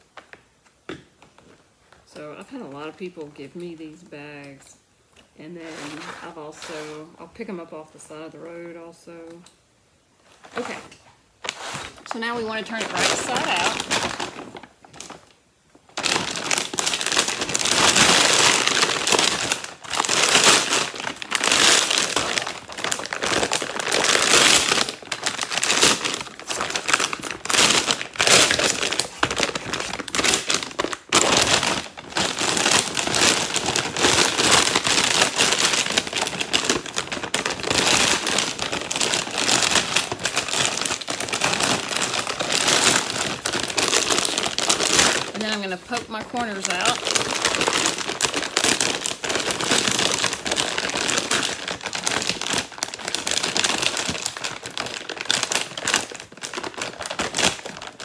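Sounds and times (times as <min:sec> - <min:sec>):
plastic sack crinkling and rustling: 0:10.2 - 0:58.0.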